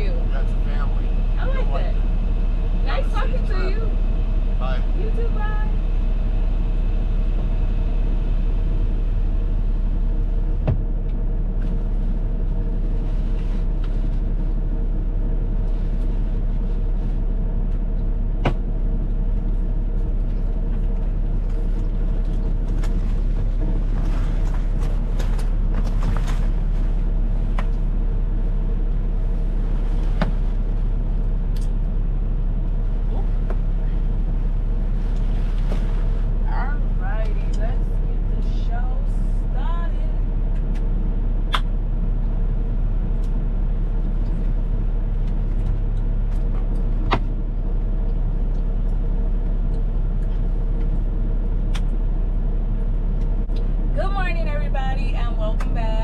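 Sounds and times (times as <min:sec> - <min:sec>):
truck engine rumbling: 0:00.0 - 0:56.0.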